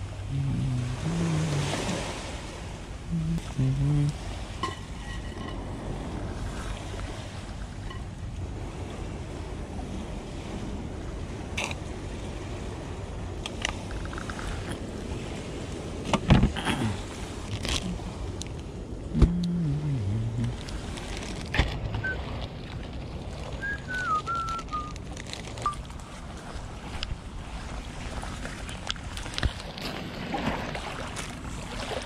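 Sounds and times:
water noise: 0.0 - 32.0
wind: 0.0 - 32.0
low falling groan: 0.2 - 2.0, 19.1 - 20.8
faint wavering high whistle: 23.6 - 25.0.

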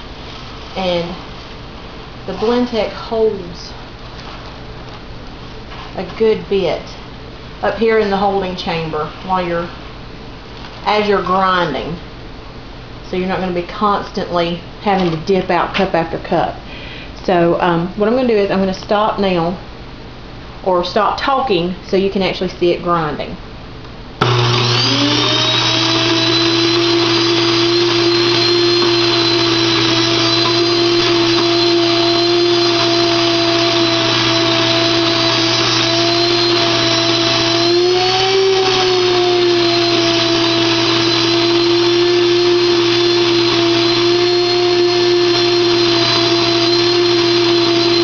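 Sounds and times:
electric grain mill grinding: 24.2 - 48.0.

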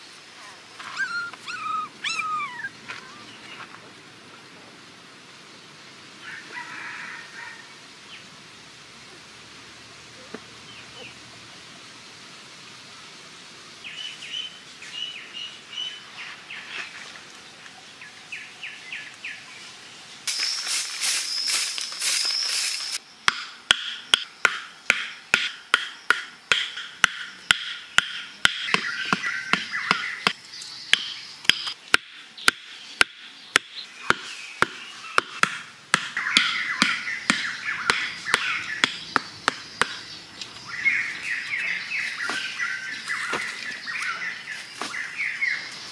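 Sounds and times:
birds chirping: 0.0 - 4.5, 24.0 - 45.9
puppy whimpering: 0.8 - 3.3
broom scraping dirt: 16.2 - 17.3, 20.2 - 23.0, 41.2 - 45.9
stakes hammered into ground: 23.2 - 40.1.

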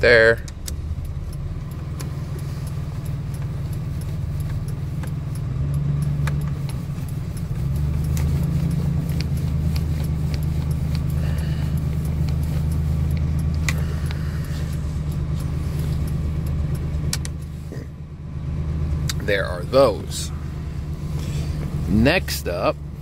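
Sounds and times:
turn-signal flasher clicking: 0.0 - 17.6
truck engine idling: 0.0 - 23.0.

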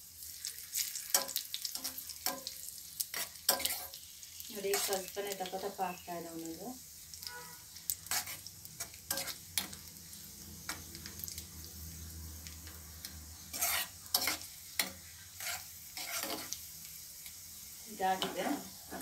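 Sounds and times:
raisins sizzling in a pan: 0.0 - 19.0
steel spoon scraping a pan: 0.7 - 5.7, 7.2 - 11.1, 13.4 - 16.6.

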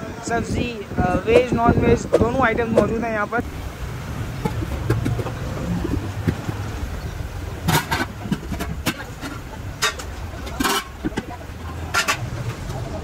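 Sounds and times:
steady low rumble: 0.4 - 13.0
metal pot lids clanking: 4.4 - 12.4.

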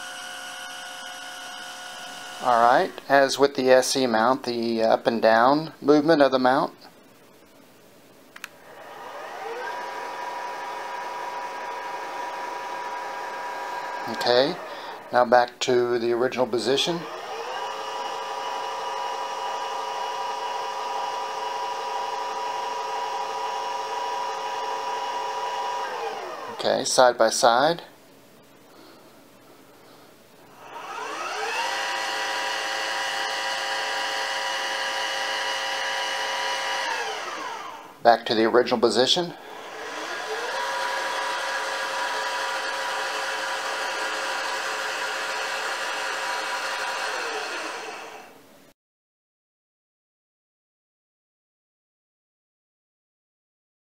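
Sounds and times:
telescope motor gear whine: 0.0 - 2.9, 8.7 - 15.2, 17.0 - 26.6, 30.6 - 37.9, 39.4 - 48.4.

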